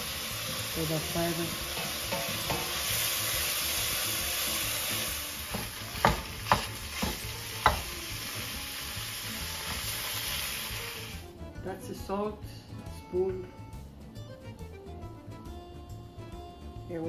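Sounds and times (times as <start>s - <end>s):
food sizzling in a pot: 0.0s - 11.4s.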